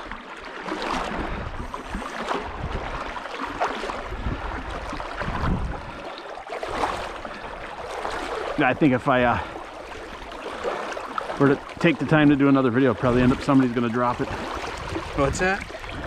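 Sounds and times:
wind buffeting microphone: 0:01.1 - 0:03.1, 0:04.0 - 0:06.0, 0:13.0 - 0:16.0
net splashing in water: 0:02.1 - 0:05.5, 0:06.5 - 0:07.2, 0:07.8 - 0:08.6.

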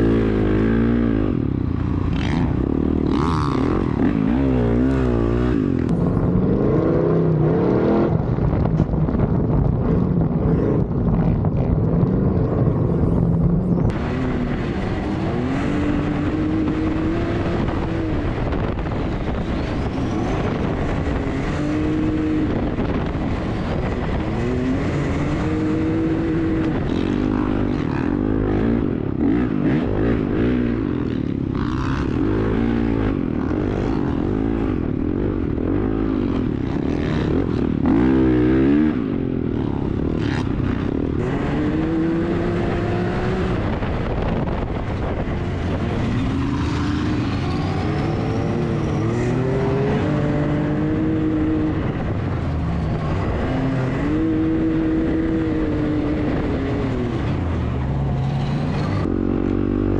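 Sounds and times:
dirt bike engine revving: 0:00.0 - 0:08.1, 0:12.7 - 0:57.4
utility vehicle engine accelerating: 0:11.7 - 0:59.9.

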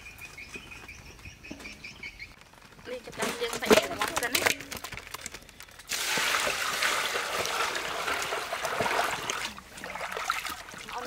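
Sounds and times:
water splashing into a metal basin: 0:05.9 - 0:11.0.

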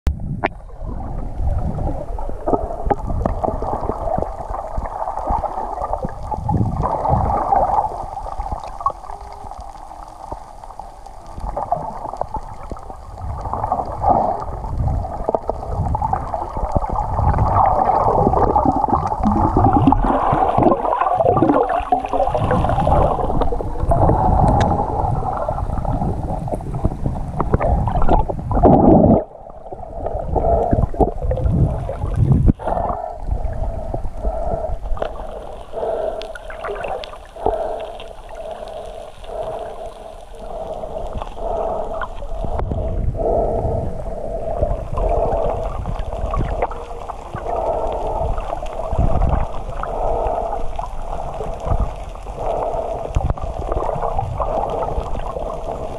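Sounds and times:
underwater water rushing: 0:00.1 - 0:55.9
faint ticks: 0:02.5 - 0:19.2, 0:22.1 - 0:24.8, 0:31.9 - 0:42.8, 0:44.5 - 0:55.9.

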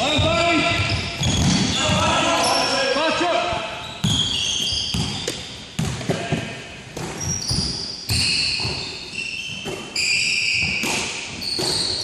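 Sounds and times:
sneakers squeaking on floor: 0:00.0 - 0:12.0
basketball dribbling on hardwood floor: 0:04.9 - 0:06.2.

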